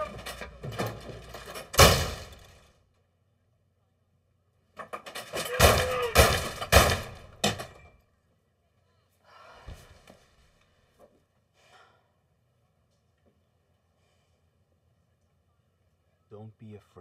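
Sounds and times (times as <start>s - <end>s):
bangs and thuds: 0.0s - 2.7s, 4.8s - 7.9s
raised voice: 5.4s - 6.3s.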